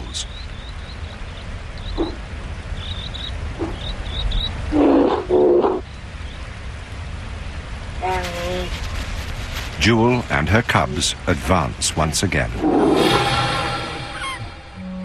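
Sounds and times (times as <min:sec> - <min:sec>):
creek water rushing: 0:00.0 - 0:15.0
high bird chirps: 0:13.1 - 0:15.0.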